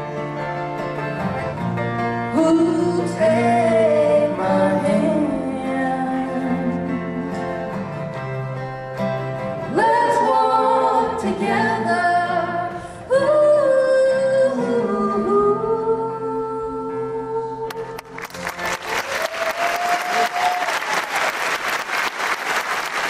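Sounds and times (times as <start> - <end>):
strummed acoustic guitars: 0.0 - 14.9
man and woman singing: 2.4 - 7.4, 9.7 - 17.7.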